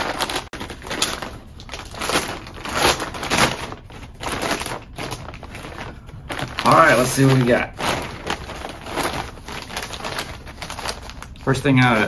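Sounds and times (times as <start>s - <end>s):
plastic mailer bag tearing: 0.0s - 12.0s.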